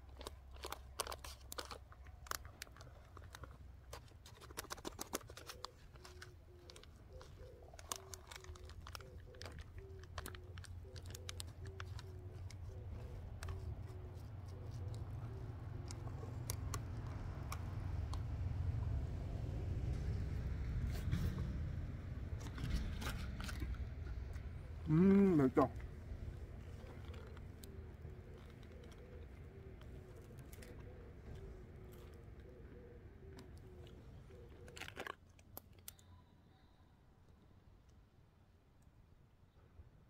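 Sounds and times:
wooden spoon scraping in pouch: 0.0 - 17.0, 22.3 - 24.2, 25.7 - 32.2
chewing and crunching: 0.0 - 36.1.

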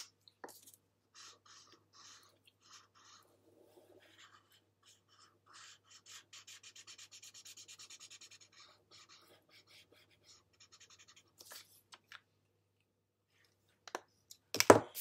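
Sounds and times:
marker scratching on paper: 0.0 - 11.8.

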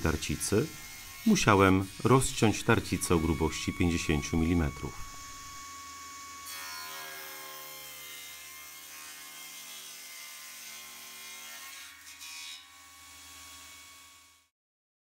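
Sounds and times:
table saw ripping a board: 6.4 - 14.4.

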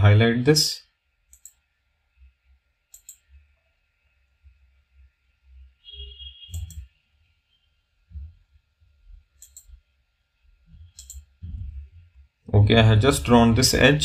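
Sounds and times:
computer mouse clicks: 1.3 - 1.6, 2.9 - 3.3, 6.5 - 6.9, 9.4 - 9.8, 10.8 - 11.3
faint low rumble: 10.5 - 14.0.

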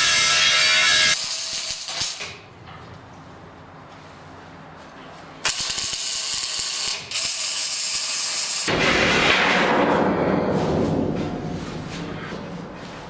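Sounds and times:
welding arc crackling and hissing: 0.0 - 2.4, 5.4 - 8.7.

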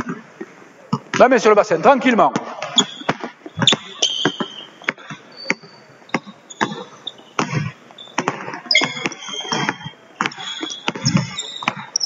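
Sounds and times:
basketballs bouncing on wooden floor: 2.4 - 12.0
sneaker squeaks: 2.6 - 12.0.

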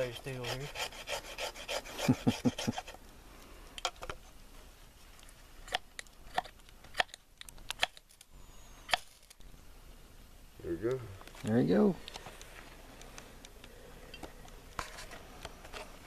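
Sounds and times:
knife scraping ferrocerium rod: 0.0 - 3.0.

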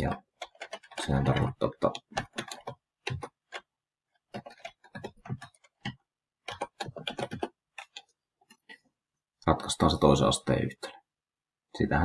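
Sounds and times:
keyboard keys clicking: 0.0 - 8.7.

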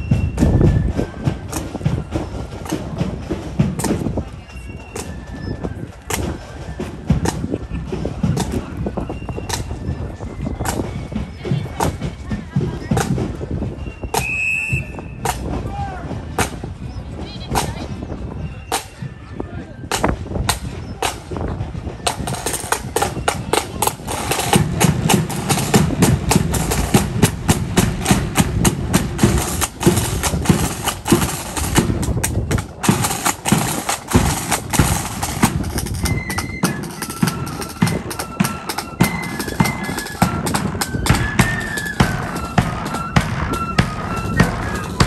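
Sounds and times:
snare drums: 0.0 - 4.2, 4.8 - 5.2, 5.8 - 8.8, 10.6 - 16.8, 18.7 - 19.0, 19.9 - 21.4, 22.0 - 45.0
flutes playing a tune: 13.7 - 16.1, 32.8 - 45.0.

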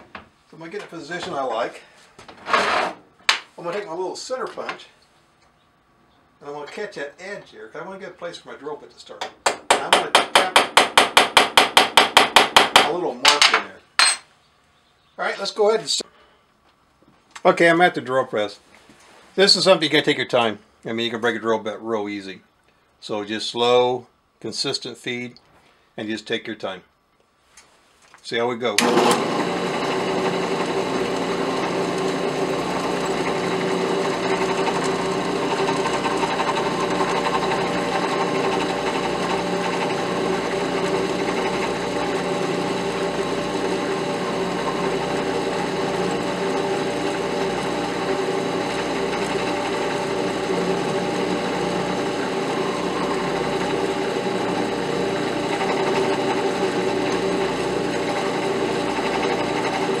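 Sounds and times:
drill bit boring through metal: 28.8 - 60.0
drill press motor running: 28.8 - 60.0.

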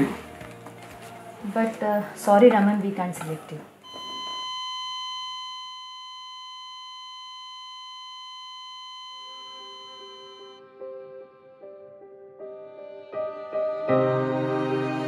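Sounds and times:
soft keyboard music: 0.0 - 2.5, 8.6 - 15.0
high electronic tone: 3.8 - 10.6.

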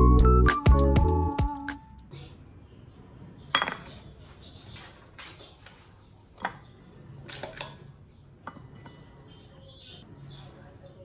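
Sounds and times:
ceramic plate clinking: 3.5 - 4.0, 8.4 - 9.2.

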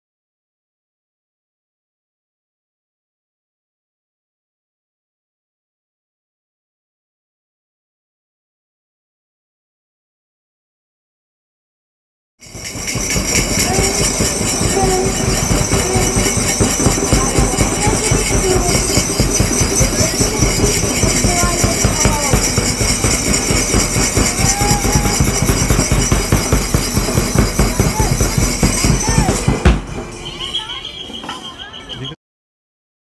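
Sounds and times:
faint voices: 12.7 - 32.2.

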